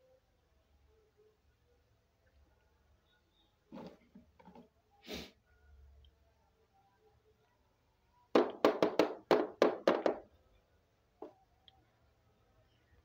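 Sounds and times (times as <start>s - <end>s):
plastic toy knocking on table: 8.4s - 10.2s.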